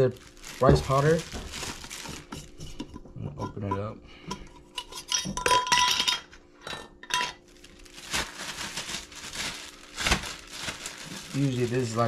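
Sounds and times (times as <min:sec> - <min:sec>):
metal jar lid clinking on glass: 0:04.8 - 0:07.4.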